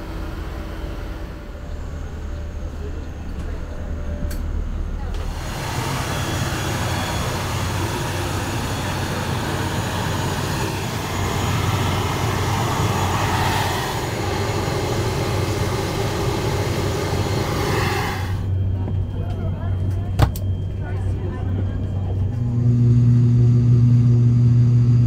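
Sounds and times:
low engine hum: 0:00.0 - 0:25.0
rushing noise from aircraft: 0:05.2 - 0:22.4.

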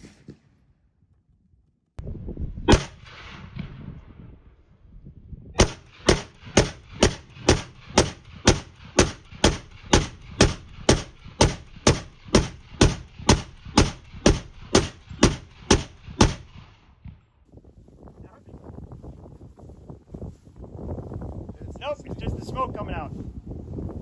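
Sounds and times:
semi-automatic rifle shots: 0:02.7 - 0:03.8, 0:05.6 - 0:17.0.

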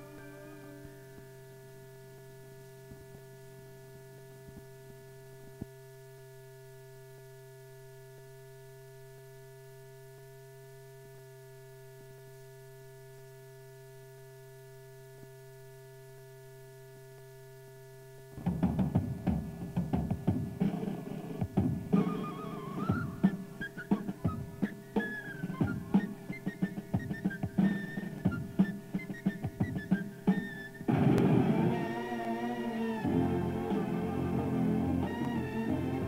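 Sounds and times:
hum of held tones: 0:00.0 - 0:36.0
field drum quick strokes: 0:18.4 - 0:32.1.

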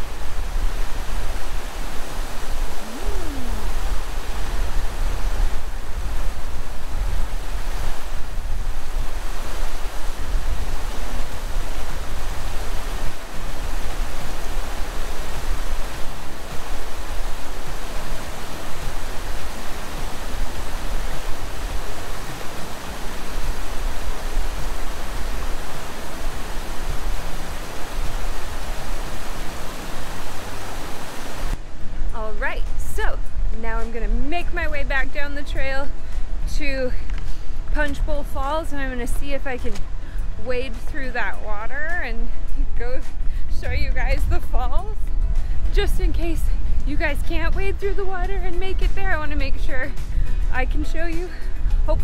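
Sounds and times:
water rushing: 0:00.0 - 0:33.2.

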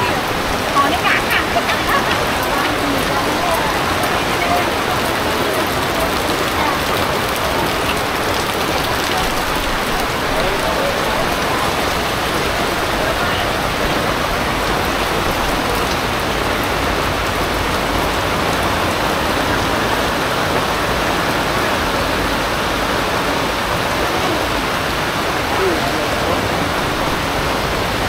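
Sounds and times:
heavy rain pouring: 0:00.0 - 0:28.0.

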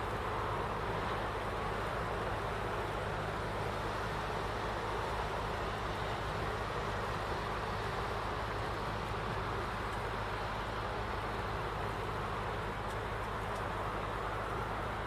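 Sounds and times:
boat engine humming: 0:00.0 - 0:15.0
hiss of water and wind: 0:00.0 - 0:15.0.

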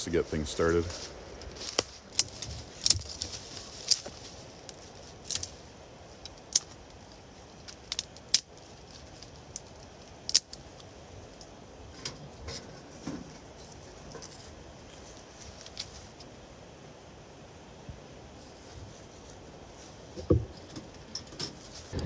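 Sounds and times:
dry twigs snapping: 0:00.9 - 0:11.5.

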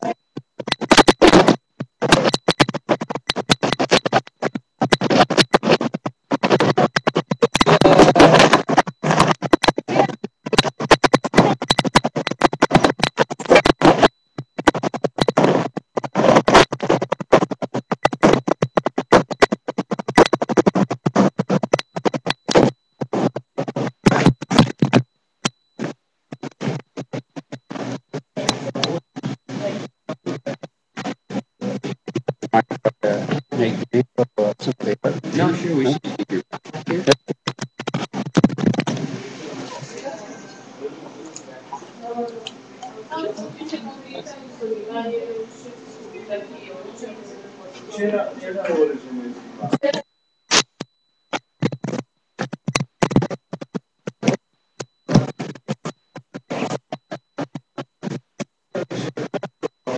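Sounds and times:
crackling and rubbing on microphone: 0:00.0 - 0:48.9, 0:49.6 - 0:59.9.

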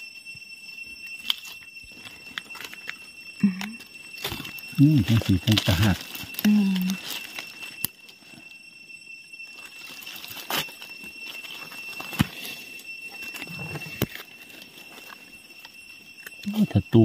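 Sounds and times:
steady high-pitched tone: 0:00.0 - 0:17.0
dry leaves crackling: 0:04.2 - 0:08.2, 0:09.5 - 0:15.7.

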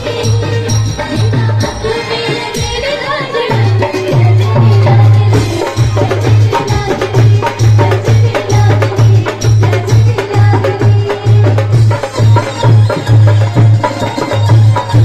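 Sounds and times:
electronic keyboard folk music: 0:11.7 - 0:15.0.

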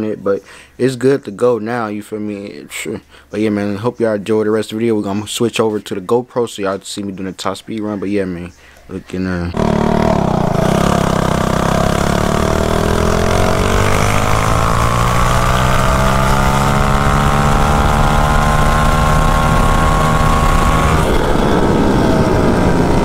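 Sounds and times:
mini bike engine at full throttle: 0:09.5 - 0:23.0
wind rushing over microphone: 0:09.6 - 0:23.0.

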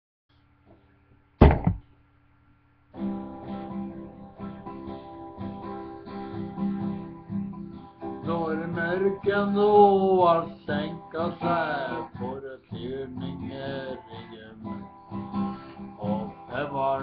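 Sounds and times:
loud thump: 0:01.4 - 0:01.9
acoustic guitar strumming: 0:03.0 - 0:17.0.

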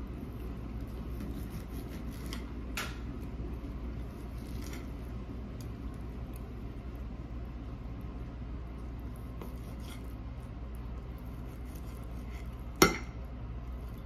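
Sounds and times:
knife sawing through steak: 0:01.2 - 0:02.4, 0:09.4 - 0:10.1, 0:11.2 - 0:12.6.

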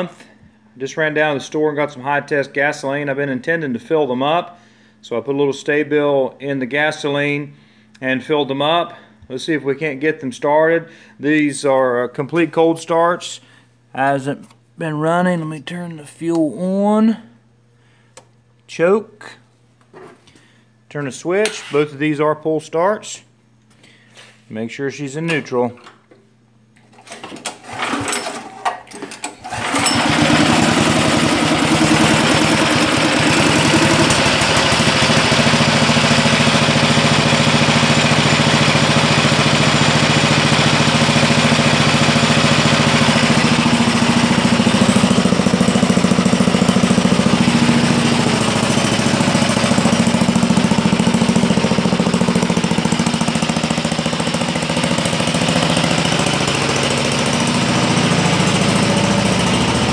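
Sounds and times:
engine pull-started: 0:26.9 - 0:59.9
small engine running: 0:29.4 - 0:59.9.

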